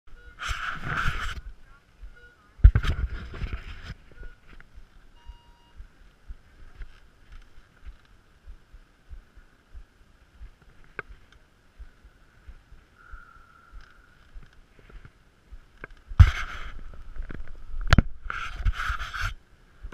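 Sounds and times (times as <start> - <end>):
hands rubbing on camera: 0.4 - 1.6, 2.7 - 4.9, 15.9 - 17.6, 18.2 - 19.4
low thumps on wooden deck: 7.8 - 11.2.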